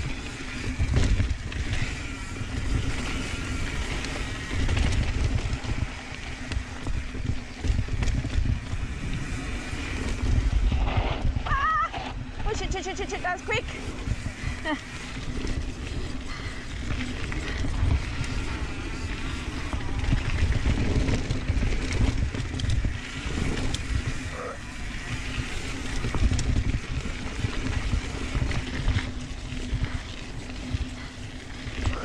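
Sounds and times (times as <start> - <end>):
bike tyres rumbling on dirt: 0.0 - 32.0
wind buffeting camera: 0.0 - 32.0
bike clicks and knocks: 0.2 - 11.4, 15.2 - 24.2.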